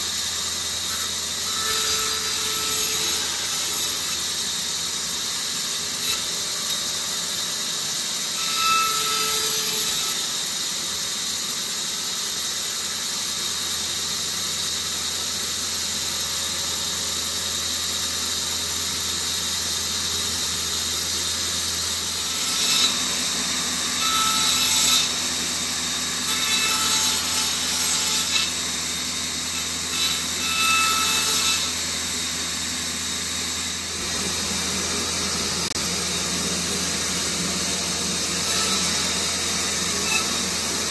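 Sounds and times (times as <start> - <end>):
bandsaw cutting wood: 0.0 - 10.6, 19.2 - 40.9.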